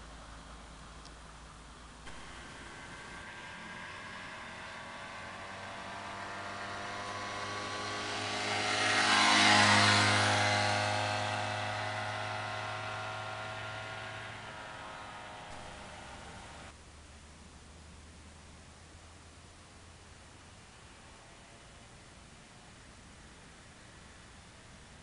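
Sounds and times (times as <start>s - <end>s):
moped engine passing: 2.1s - 16.8s.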